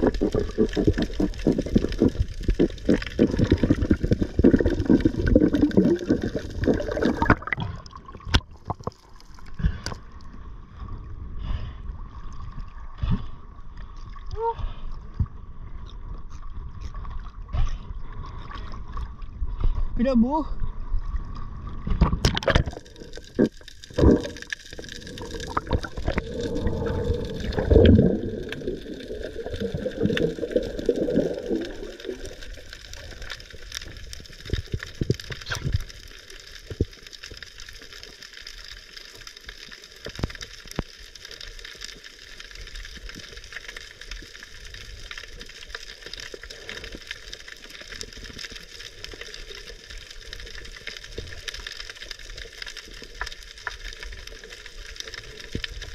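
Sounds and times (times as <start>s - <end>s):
seawater sloshing and gurgling: 0.0s - 10.0s, 21.5s - 33.5s.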